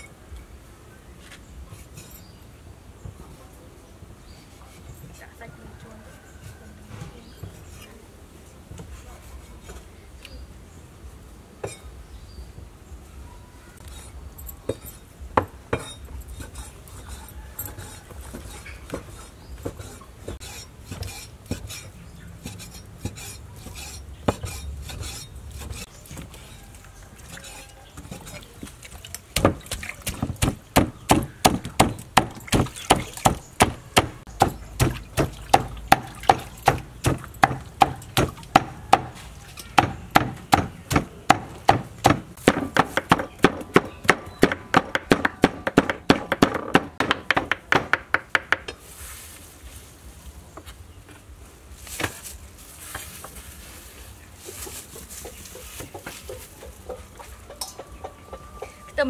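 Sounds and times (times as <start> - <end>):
cleaver chopping on wooden board: 29.4 - 39.2, 39.8 - 48.7.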